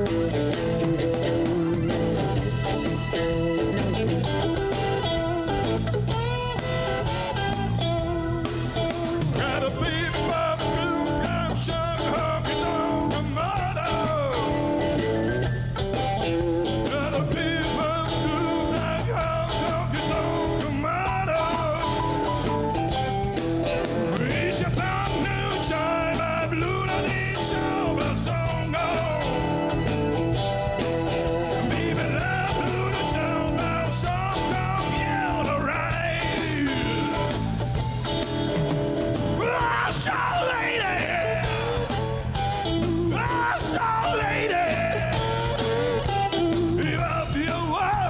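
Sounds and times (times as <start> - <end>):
drums: 0.0 - 48.0
electric guitar: 0.0 - 48.0
live rock band playing: 0.0 - 48.0
person singing: 8.4 - 15.2, 16.7 - 22.5, 24.1 - 29.9, 31.4 - 37.4, 39.4 - 48.0.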